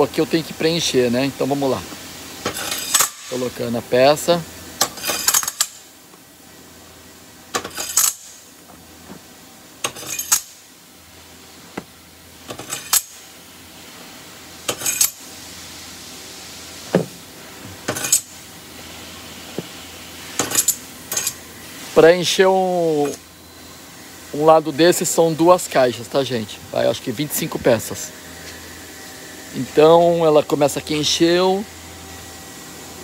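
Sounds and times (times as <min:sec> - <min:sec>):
metal parts clinking onto pile: 0:04.9 - 0:05.8, 0:09.8 - 0:10.6, 0:14.7 - 0:15.2, 0:17.9 - 0:18.3, 0:20.4 - 0:21.4.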